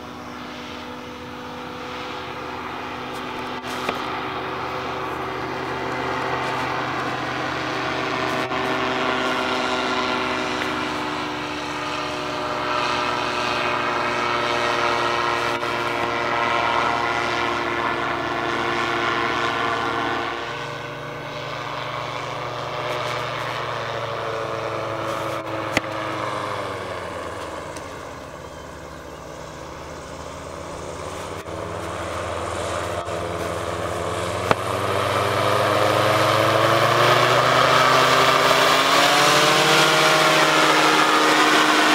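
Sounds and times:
engine and propeller in flight: 0.0 - 41.9.

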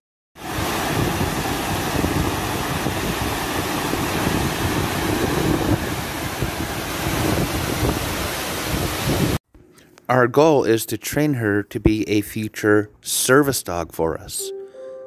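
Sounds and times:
wind buffeting microphone: 0.5 - 9.4.

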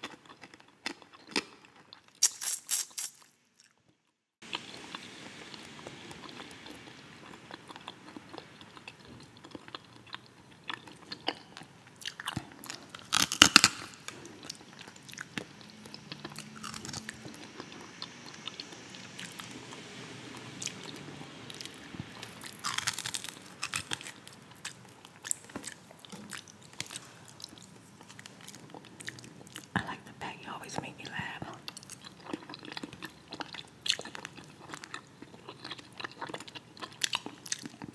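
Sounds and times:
chewing and mouth clicks: 0.0 - 3.8, 5.7 - 19.5, 21.5 - 29.8, 31.4 - 37.9
loud crunching bites: 0.8 - 3.3, 12.0 - 14.3, 16.3 - 17.7, 21.6 - 27.0.

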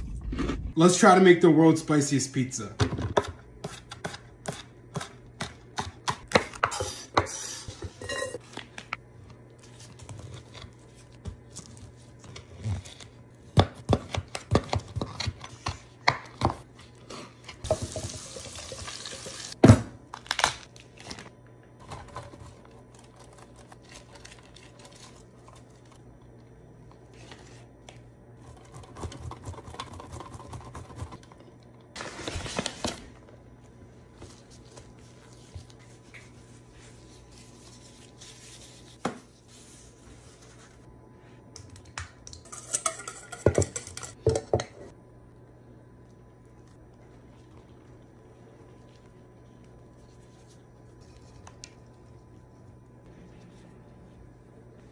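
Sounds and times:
utensils clattering on cutting board: 42.4 - 44.9.

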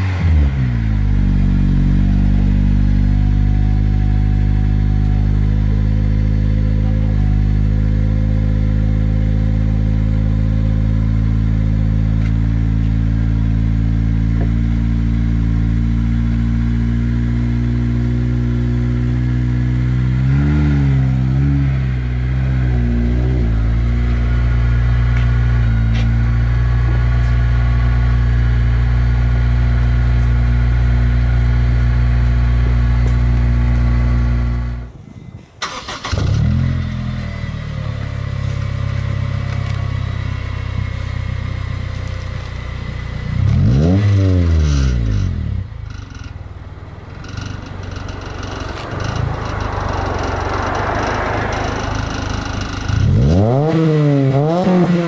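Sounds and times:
car engine running: 0.0 - 35.0, 35.6 - 55.0
engine revving blip: 47.2 - 55.0.

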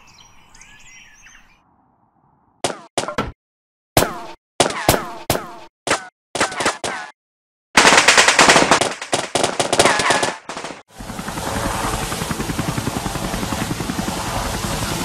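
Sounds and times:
automatic gunfire bursts: 7.8 - 10.9
helicopter rotors chopping: 7.8 - 15.0.

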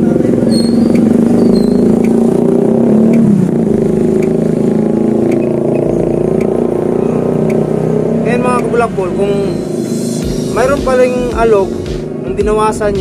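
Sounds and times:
engine running loudly: 0.0 - 13.0
faint regular ticking: 0.9 - 7.8.

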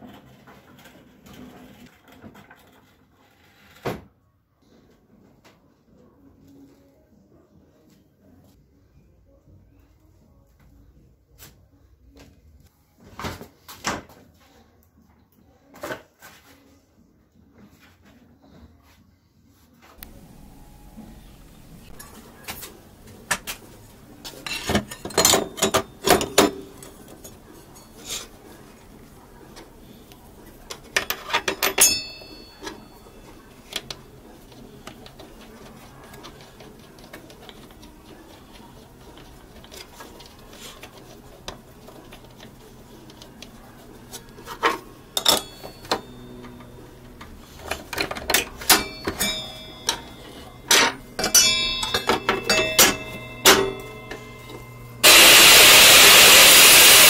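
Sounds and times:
metal clinks and clanks of saw parts: 31.0 - 33.0, 44.6 - 46.6, 47.6 - 54.7.

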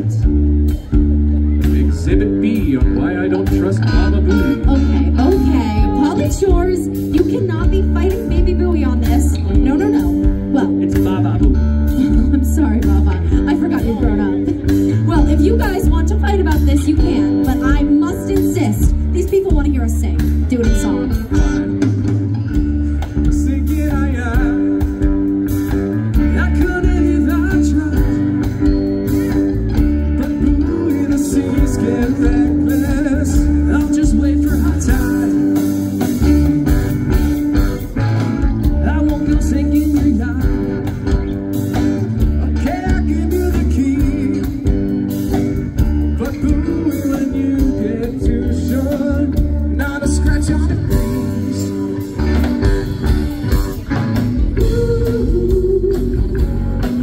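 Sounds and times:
rock band with guitars: 0.0 - 57.0
person singing: 1.6 - 8.2, 23.0 - 36.4, 38.6 - 57.0.

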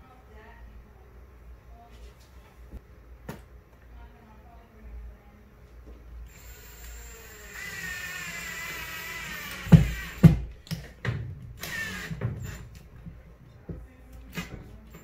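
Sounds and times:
cordless drill whining: 6.3 - 10.4, 11.6 - 12.8
loud knocks: 9.6 - 11.4.

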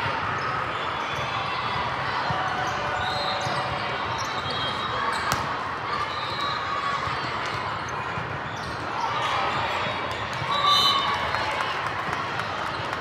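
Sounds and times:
volleyballs thudding and bouncing: 5.2 - 5.6.

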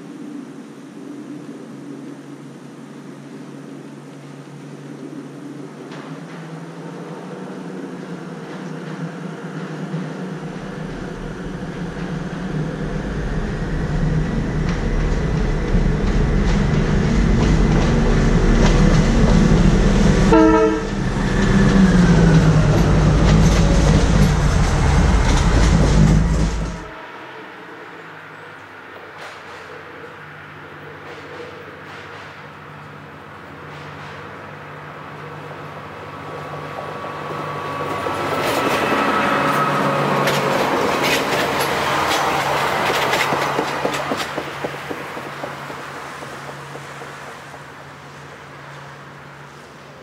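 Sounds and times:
diesel railcar engines droning: 4.0 - 50.0
train horn blast: 19.9 - 22.5, 38.5 - 40.4
wheels clicking over rail joints: 36.3 - 50.0.

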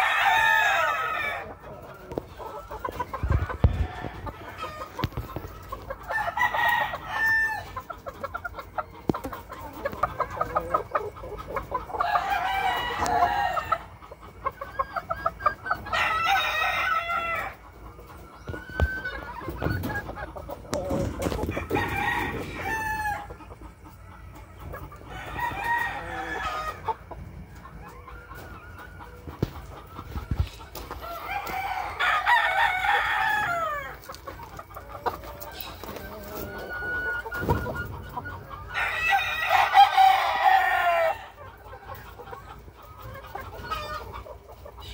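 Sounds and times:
roosters crowing: 0.0 - 2.2, 3.2 - 7.9, 11.8 - 14.0, 14.8 - 17.7, 18.4 - 23.4, 24.9 - 27.1, 30.3 - 41.6
chickens clucking: 0.0 - 44.9.

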